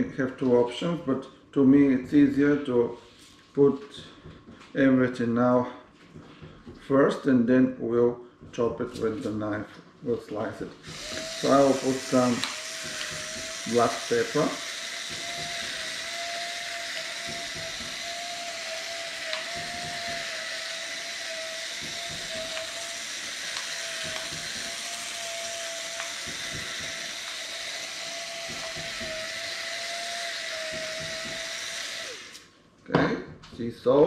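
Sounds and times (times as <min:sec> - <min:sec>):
electric pepper mill grinding: 0:10.8 - 0:32.5.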